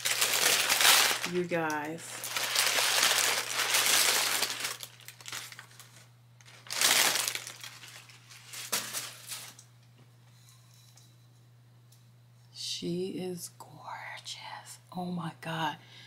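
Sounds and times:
tissue paper rustling: 0:00.0 - 0:09.6.

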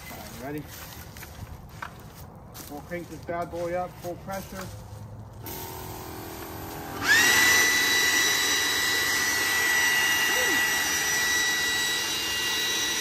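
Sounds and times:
leaf blower whining: 0:05.4 - 0:13.0.

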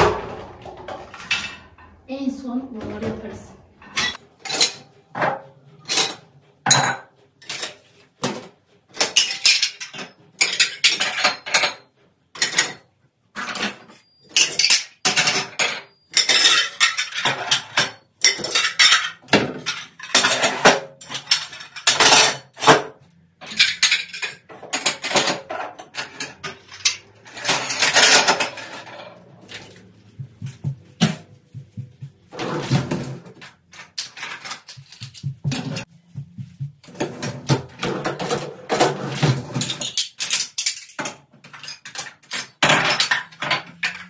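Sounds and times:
plates and glasses clinking: 0:03.8 - 0:12.8, 0:13.4 - 0:29.9.

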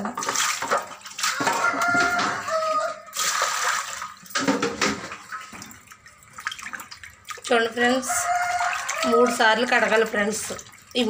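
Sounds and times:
water sloshing in steel basin: 0:00.0 - 0:11.0.

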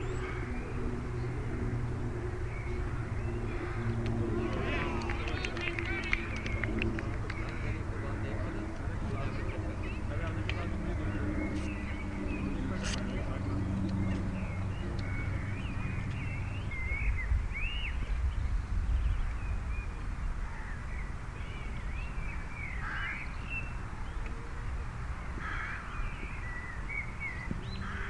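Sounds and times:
harsh caw-like bird calls: 0:00.0 - 0:00.8, 0:02.6 - 0:06.7, 0:22.7 - 0:23.4, 0:25.4 - 0:26.4, 0:27.6 - 0:28.0
birds chirping and warbling: 0:00.0 - 0:28.0
wind rumble on microphone: 0:00.0 - 0:28.0.

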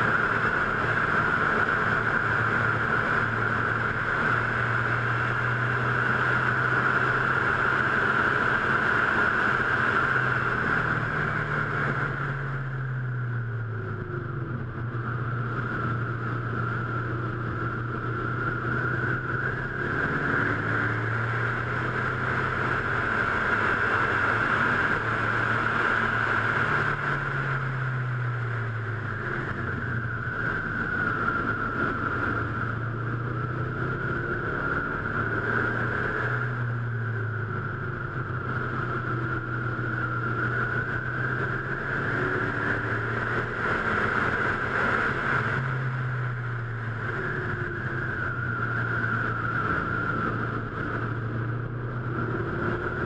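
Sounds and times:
car engine running hard: 0:00.0 - 0:53.0
wind and road noise: 0:00.0 - 0:53.0.

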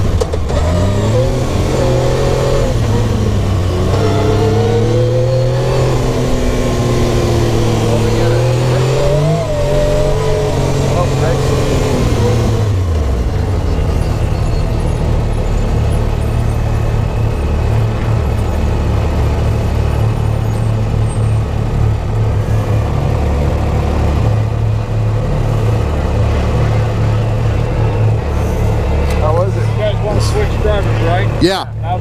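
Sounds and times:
engine running at low revs: 0:00.0 - 0:32.0.

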